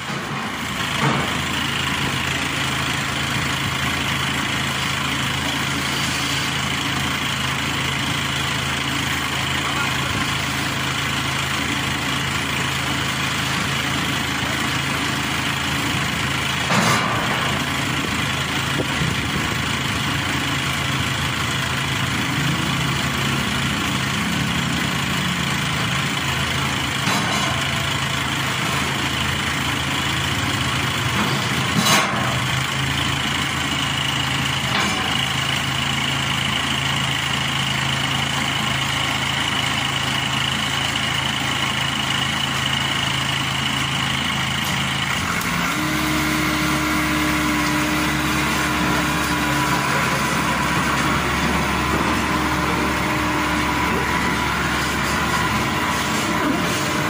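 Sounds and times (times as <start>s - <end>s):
harvester engine idling: 0.0s - 57.0s
metal ramps clanking: 31.1s - 32.4s.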